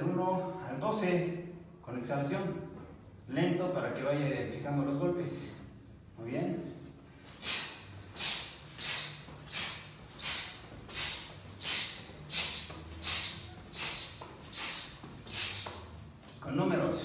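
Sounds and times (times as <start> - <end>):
man's hissing forced exhalations: 7.3 - 15.8.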